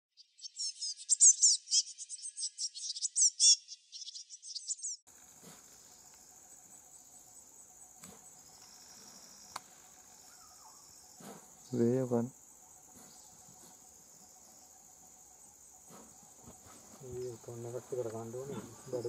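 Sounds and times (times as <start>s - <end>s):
rapid high-pitched chirps and trills: 0.2s - 5.0s
high-pitched insect drone: 4.8s - 19.0s.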